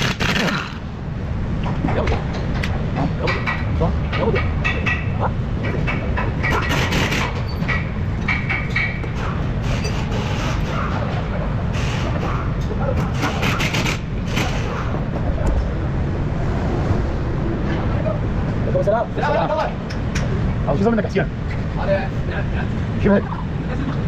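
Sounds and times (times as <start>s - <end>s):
steady low rumble: 0.0s - 24.0s
metallic clicks and knocks: 1.6s - 11.2s.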